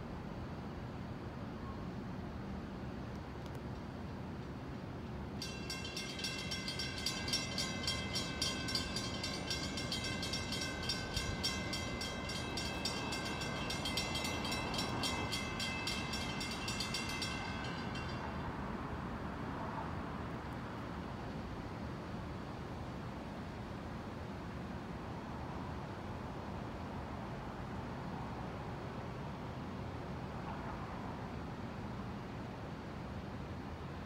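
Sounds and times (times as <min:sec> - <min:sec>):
crossing bell ringing: 0:05.4 - 0:20.0.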